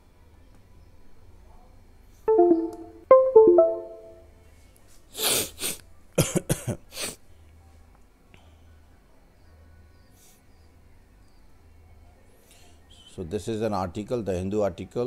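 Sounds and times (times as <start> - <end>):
short melodic chime: 2.3 - 4.2
man coughing: 6.2 - 6.8.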